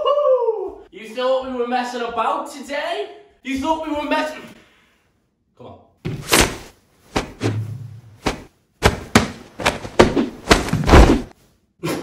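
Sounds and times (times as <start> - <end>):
sharp thuds and whacks: 6.0 - 7.6, 8.2 - 11.3.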